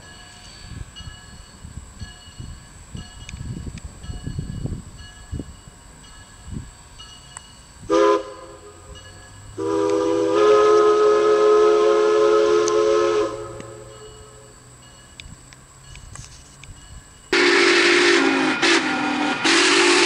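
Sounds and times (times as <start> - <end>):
hiss of steam: 4.7 - 15.4, 17.3 - 20.0
steam locomotive whistle: 7.8 - 14.5, 17.3 - 20.0.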